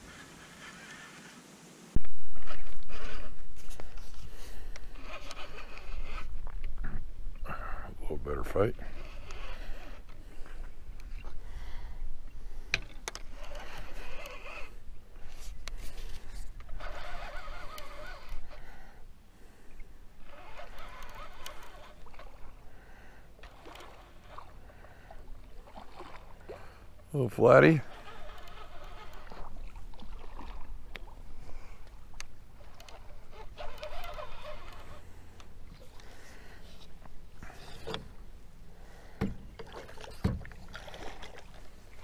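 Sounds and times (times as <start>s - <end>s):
fishing reel cranking: 2.4s - 6.4s, 8.4s - 11.3s, 13.0s - 19.0s, 20.2s - 22.6s, 23.4s - 25.3s, 26.1s - 30.5s, 31.6s - 38.0s.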